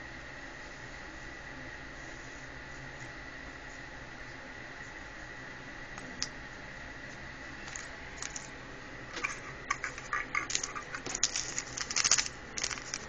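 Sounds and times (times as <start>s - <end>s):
handling clicks and crackles: 10.4s - 13.0s.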